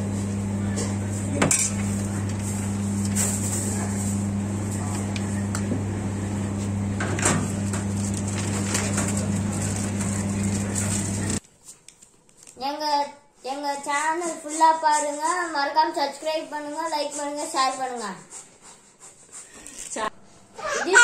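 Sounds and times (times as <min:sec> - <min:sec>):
low electrical hum: 0:00.0 - 0:12.5.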